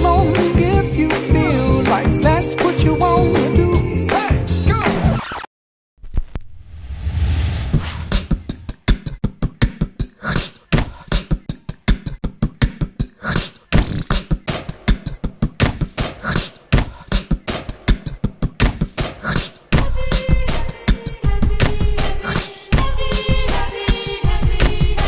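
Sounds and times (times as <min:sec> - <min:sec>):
man beatboxing: 0:00.0 - 0:05.0, 0:08.9 - 0:19.8
low hum: 0:06.6 - 0:08.8.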